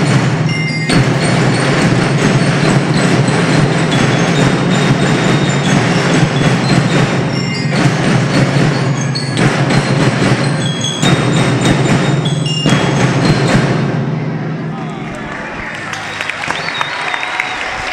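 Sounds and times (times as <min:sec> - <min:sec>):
bell lyres ringing melody: 0:00.0 - 0:13.8
snare drums: 0:00.0 - 0:14.8.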